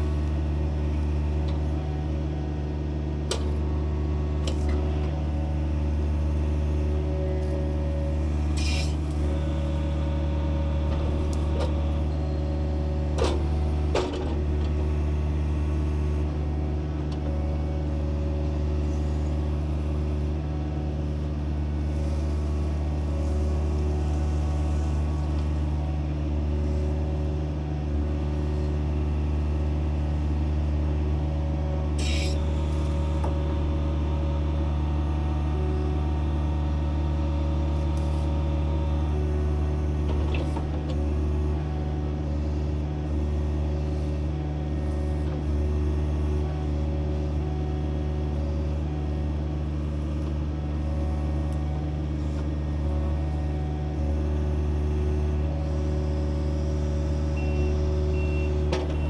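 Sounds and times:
excavator engine running: 0.0s - 59.0s
brief high screech: 32.0s - 32.4s.

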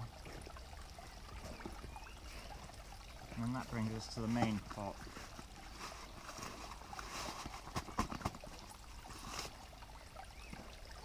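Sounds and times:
stream trickling: 0.0s - 11.0s.

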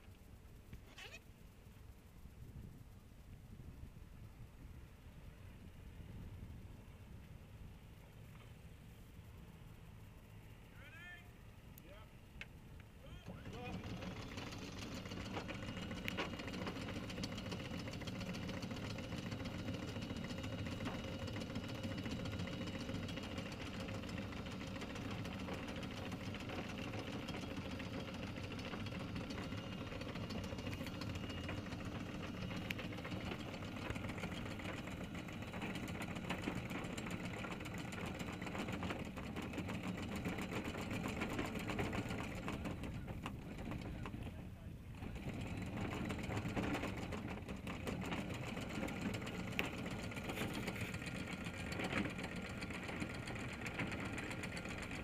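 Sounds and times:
diesel engine running at low revs: 12.7s - 55.0s.

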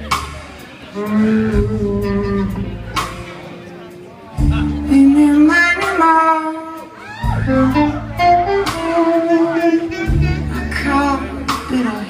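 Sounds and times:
electric guitar: 0.0s - 12.0s
held bass notes: 0.0s - 12.0s
woman singing: 4.6s - 6.9s, 8.7s - 12.0s.

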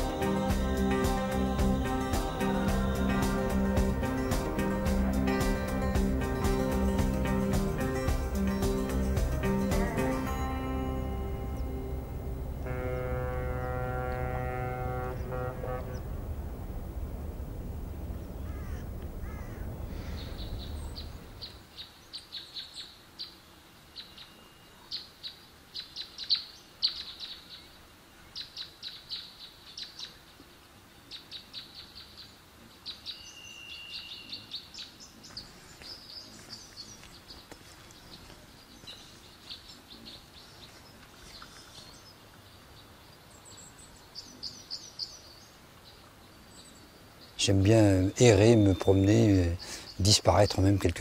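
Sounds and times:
low engine rumble: 0.0s - 21.5s
songbirds chirping: 0.0s - 51.0s.

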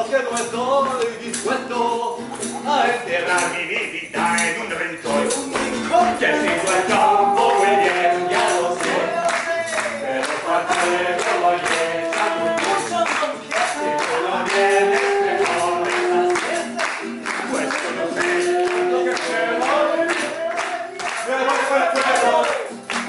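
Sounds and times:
men singing together: 0.0s - 22.9s
acoustic guitar: 0.0s - 23.0s
hand claps: 0.0s - 23.0s
saxophone: 6.2s - 9.4s, 10.1s - 20.6s.

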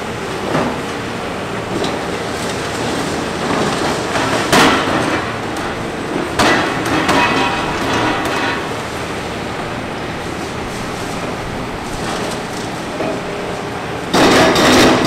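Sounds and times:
excavator running: 0.0s - 15.0s
concrete knocking and crashing: 6.2s - 8.8s.

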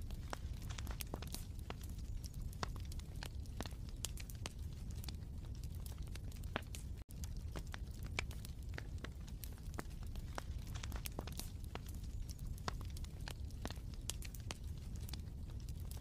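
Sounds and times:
wood fire crackling: 0.0s - 16.0s.

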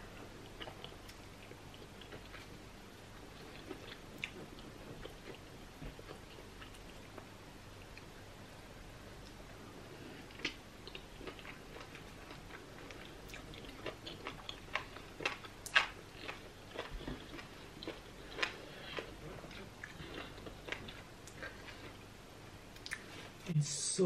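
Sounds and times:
person chewing wet mouth sounds: 0.4s - 2.6s, 3.3s - 5.4s, 10.3s - 22.0s, 22.8s - 23.1s.

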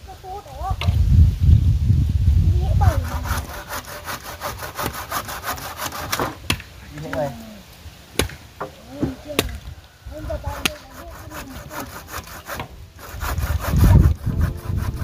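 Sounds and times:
hand saw cutting wood: 2.8s - 6.5s, 10.2s - 15.0s.

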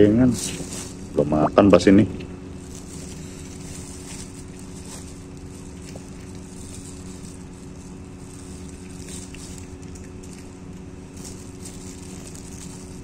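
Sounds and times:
low mechanical hum: 0.0s - 13.0s
plastic bag rustling: 0.0s - 13.0s.

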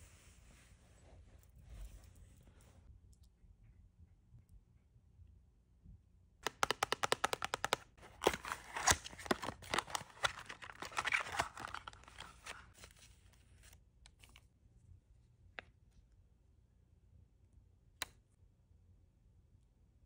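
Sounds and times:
plastic packaging crinkling: 8.0s - 13.3s.

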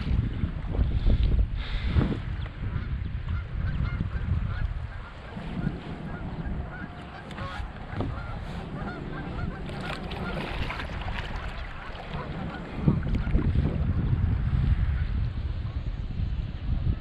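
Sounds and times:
wind rumble on microphone: 0.0s - 17.0s
geese honking: 2.8s - 13.0s.

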